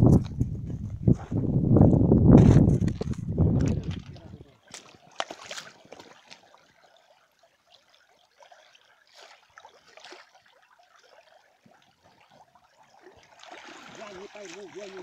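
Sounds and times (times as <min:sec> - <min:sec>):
river trickling over stones: 0:03.5 - 0:15.0
net splashing through water: 0:04.6 - 0:07.2, 0:08.2 - 0:11.5, 0:12.8 - 0:15.0.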